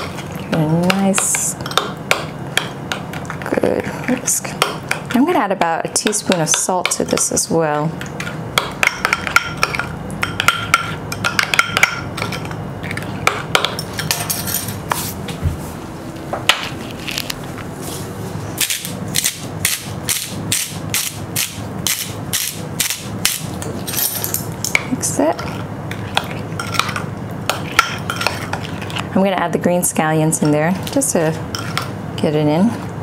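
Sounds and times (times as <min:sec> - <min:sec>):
salt grinder grinding: 0:18.6 - 0:23.5.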